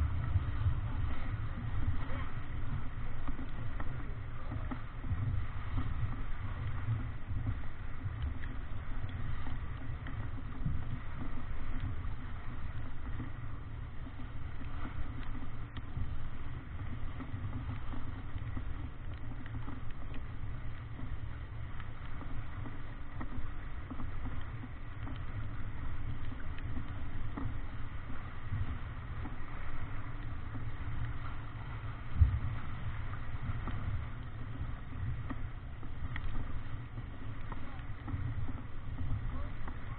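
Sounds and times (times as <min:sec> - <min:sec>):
deep rumble: 0:00.0 - 0:39.9
faint ticks: 0:00.0 - 0:39.9
water rushing past hull: 0:00.0 - 0:39.9.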